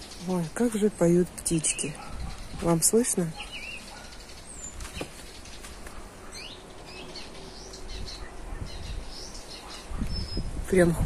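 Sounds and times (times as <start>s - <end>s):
wind rumble on microphone: 0.0s - 3.6s, 6.9s - 11.0s
songbirds chirping and singing: 0.0s - 11.0s.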